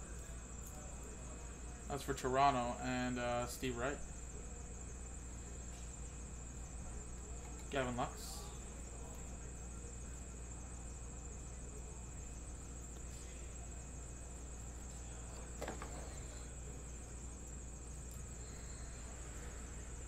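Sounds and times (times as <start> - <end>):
high-pitched hiss: 0.0 - 20.0.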